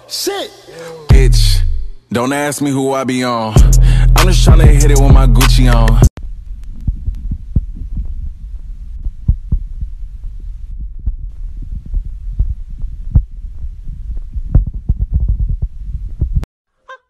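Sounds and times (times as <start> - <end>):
steady low rumble: 6.2 - 16.5.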